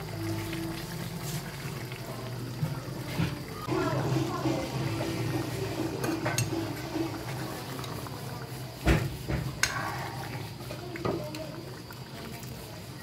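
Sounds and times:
thick curry bubbling in a pan: 0:00.0 - 0:13.0
metal ladle knocking and scraping pan: 0:06.0 - 0:07.0.

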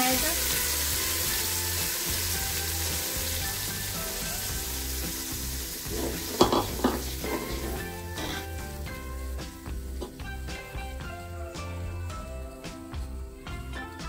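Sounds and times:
paste sizzling in hot oil: 0:00.0 - 0:11.9
metal spoon scraping pot: 0:05.9 - 0:08.6.

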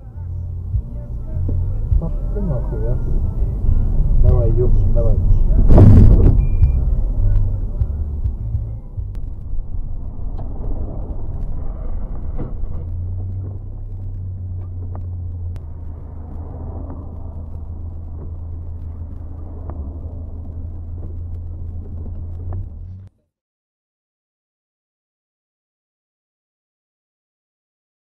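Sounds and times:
car road noise drone: 0:00.0 - 0:23.1.

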